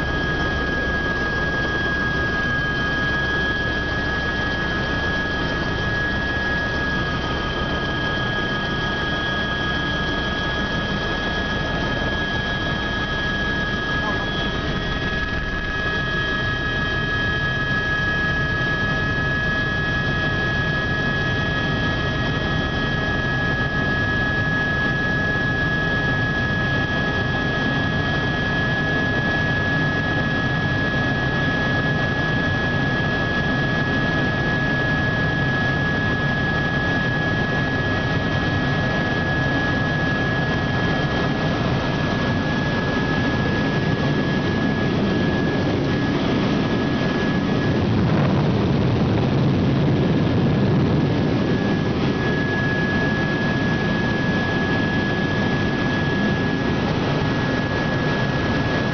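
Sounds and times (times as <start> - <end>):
high whine: 0.0 - 19.7, 37.6 - 58.9
helicopter engine and rotor drone: 0.0 - 58.9.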